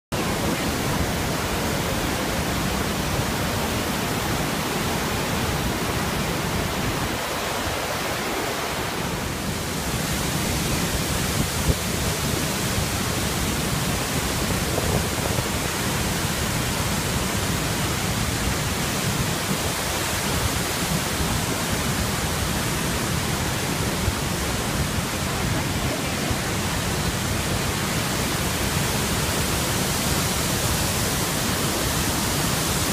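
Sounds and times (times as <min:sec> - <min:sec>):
waterfall rushing: 0:00.1 - 0:32.9.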